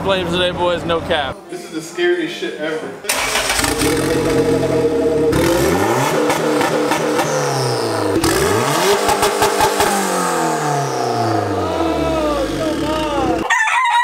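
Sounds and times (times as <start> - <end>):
car engine revving: 3.1 - 13.5
engine sharp cracks: 3.1 - 13.5.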